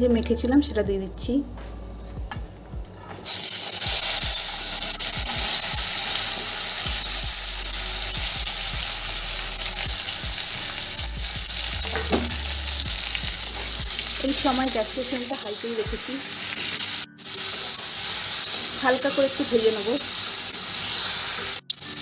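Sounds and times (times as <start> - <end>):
okra sizzling in hot oil: 3.2 - 22.0.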